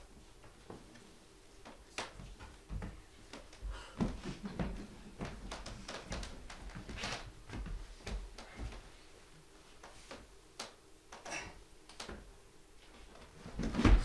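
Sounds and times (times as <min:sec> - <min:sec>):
footsteps on wooden floor: 0:02.2 - 0:08.9.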